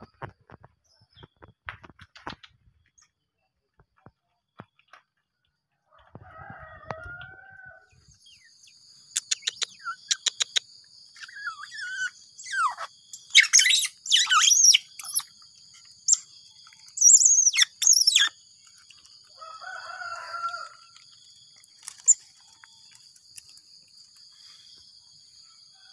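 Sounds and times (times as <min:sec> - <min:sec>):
otter pup chirping and squealing: 0:09.2 - 0:19.1.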